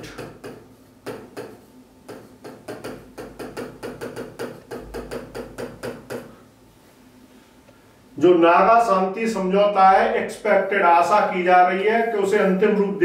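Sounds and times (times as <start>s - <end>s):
stylus tapping on touchscreen: 0.1s - 6.3s.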